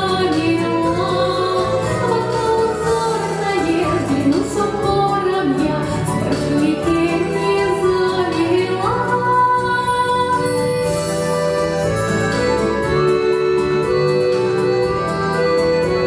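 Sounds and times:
woman singing folk song: 0.0 - 10.8
instrumental accompaniment: 0.0 - 16.0.

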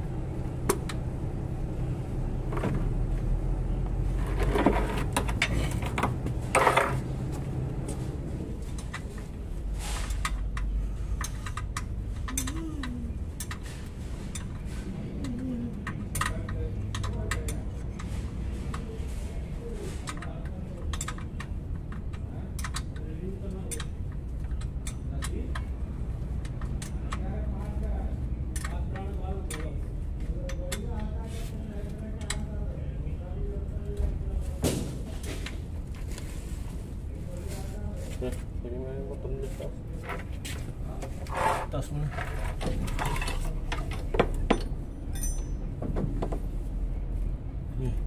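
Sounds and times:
wrench clinking and scraping on bolts: 41.2 - 45.8.

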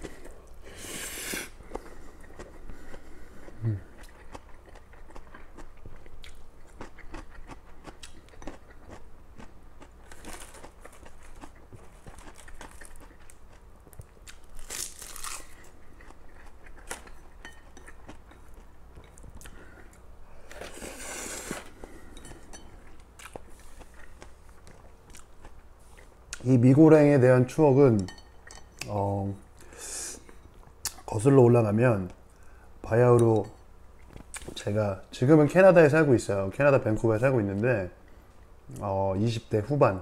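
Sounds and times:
person chewing noodles: 0.0 - 20.0, 20.6 - 26.4.

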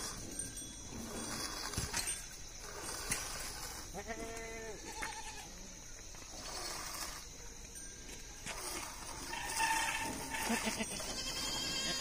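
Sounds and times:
background hiss: 0.0 - 12.0
goat bleating: 3.9 - 5.5, 9.3 - 12.0.

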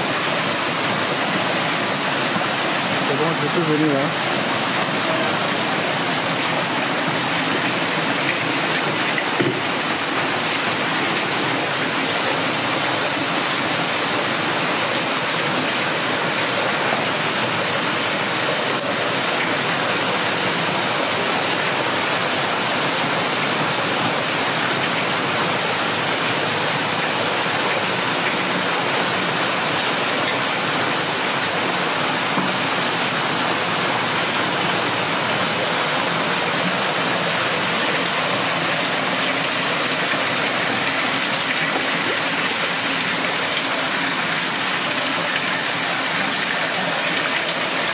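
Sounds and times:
water rushing: 0.0 - 47.9
short knock: 9.4 - 9.7.

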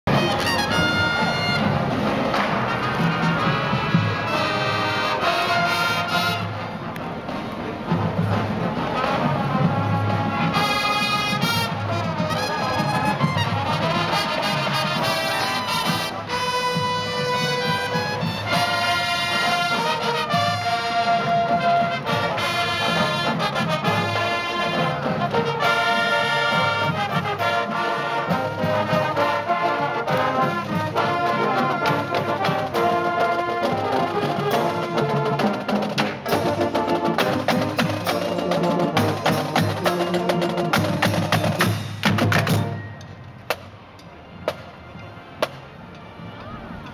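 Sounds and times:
trumpets and sousaphones: 0.1 - 6.9, 7.9 - 43.0
snare and bass drums: 26.4 - 43.8.

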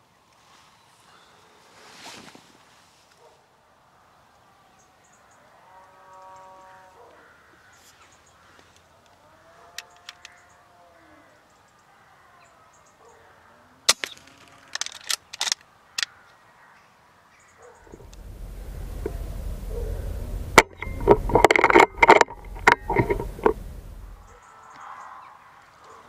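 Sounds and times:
faint clicks: 8.6 - 10.5, 17.8 - 24.9
harsh bird calls: 17.3 - 26.0
clicks and knocks: 17.9 - 24.3.

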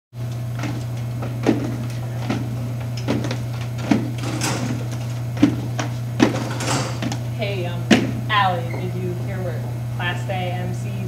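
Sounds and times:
steady low hum: 0.2 - 11.0
locker rattle: 0.5 - 7.4
metal locker knocks: 6.2 - 7.1.

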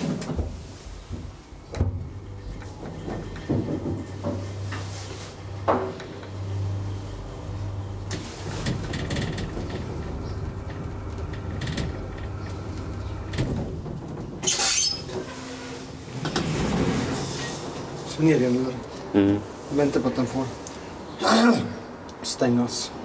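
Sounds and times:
hydraulic elevator hum: 0.5 - 19.7
elevator knocks and rattles: 1.2 - 4.6, 8.0 - 14.7.

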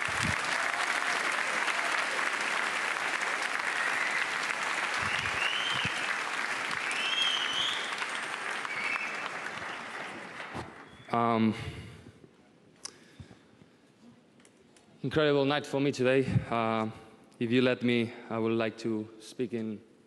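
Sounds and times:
audience applauding: 0.0 - 11.0
cheers and whistles: 3.4 - 9.8.

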